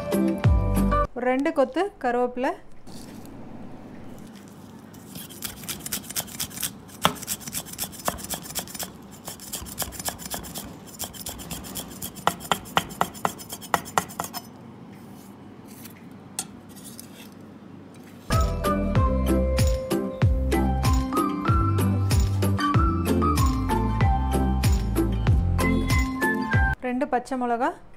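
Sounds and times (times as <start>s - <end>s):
music: 0.0s - 1.1s, 18.3s - 26.8s
knife chopping on wooden block: 5.4s - 14.4s.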